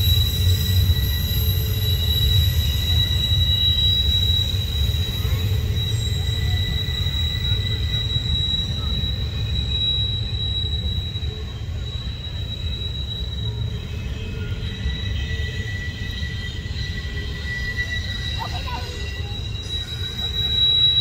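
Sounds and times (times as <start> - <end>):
train cars rumbling past: 0.0 - 21.0
wheel-flange squeal: 0.0 - 21.0.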